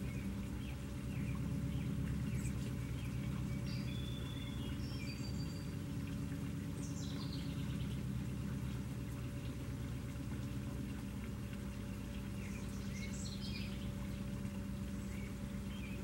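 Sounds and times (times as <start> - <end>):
small birds chirping: 0.0 - 8.2, 11.8 - 16.0
low steady hum: 0.0 - 16.0
water splashing into a pool: 0.0 - 16.0.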